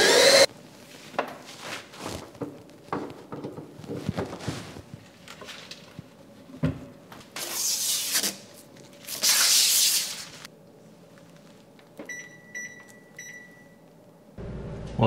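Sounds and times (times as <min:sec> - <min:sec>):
electronic appliance beeping: 0:12.0 - 0:13.9.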